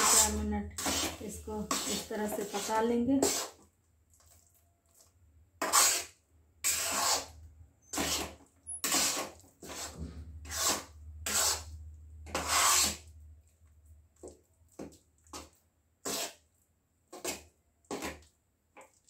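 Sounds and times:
spatula scraping thick paste in pan: 0.0 - 4.4, 5.6 - 13.1, 14.2 - 16.5, 17.1 - 18.3.

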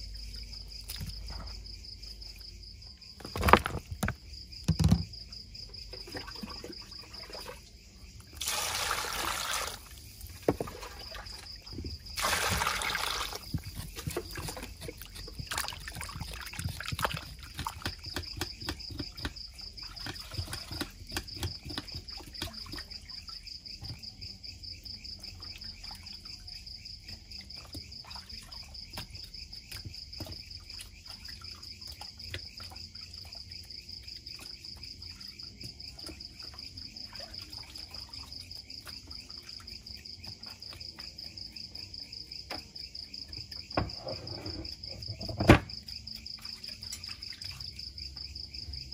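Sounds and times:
crickets chirping: 0.0 - 48.9
small splashes: 6.0 - 7.7, 8.4 - 18.2
water being poured: 8.4 - 17.8.

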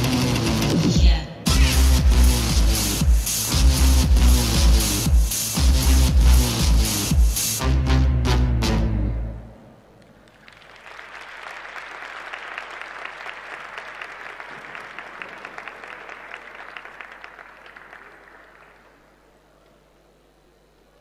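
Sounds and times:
audience applause: 10.1 - 19.4.

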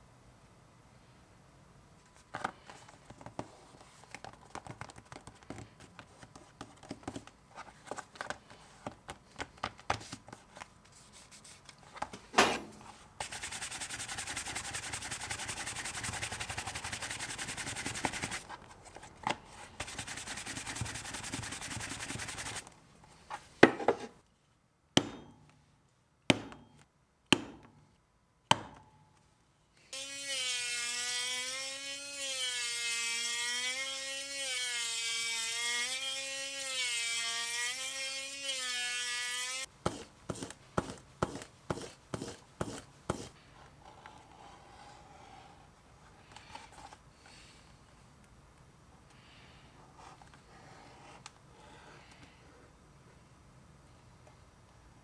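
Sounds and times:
sanding leather: 13.2 - 18.4, 19.8 - 22.6, 39.9 - 43.4.

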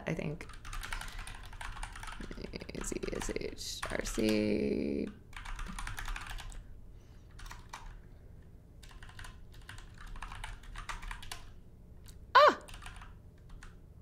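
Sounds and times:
keyboard typing: 0.4 - 4.5, 5.3 - 6.6, 7.3 - 8.0, 8.8 - 13.8.

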